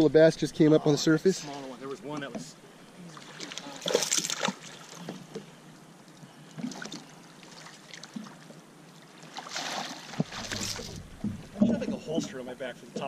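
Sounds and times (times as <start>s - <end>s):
water sloshing and splashing: 3.1s - 5.5s, 6.5s - 12.4s
faint knocks: 10.2s - 13.0s.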